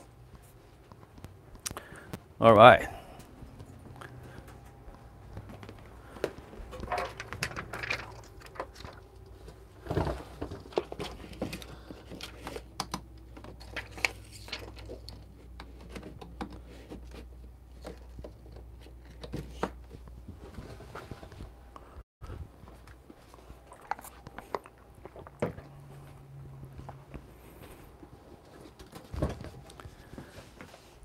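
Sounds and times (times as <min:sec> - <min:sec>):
clicks and knocks of handling: 0:03.6 - 0:20.2.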